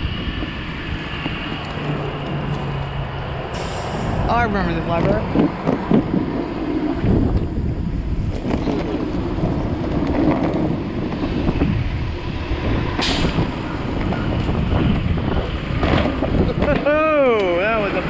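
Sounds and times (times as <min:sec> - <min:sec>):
skateboard wheels rumbling on pavement: 0:00.0 - 0:03.4, 0:04.1 - 0:18.0
street traffic: 0:00.0 - 0:18.0
wind on microphone: 0:00.0 - 0:18.0.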